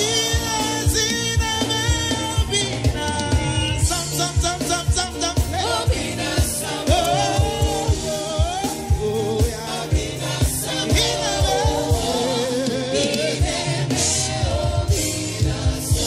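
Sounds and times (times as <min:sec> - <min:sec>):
steady low drum beat: 0:00.0 - 0:16.0
sustained bass: 0:00.0 - 0:16.0
voices singing: 0:05.4 - 0:16.0.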